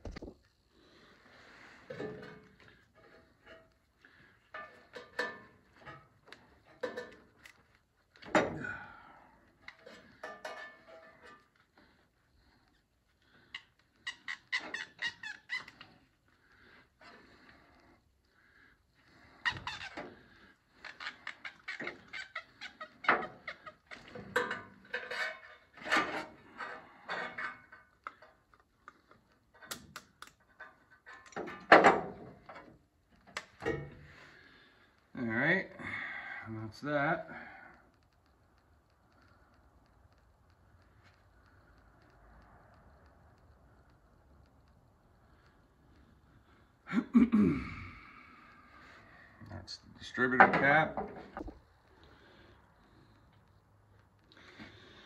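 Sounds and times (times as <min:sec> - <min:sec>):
tools clicking and knocking: 0:04.5 - 0:08.6, 0:09.7 - 0:11.6, 0:27.2 - 0:34.0.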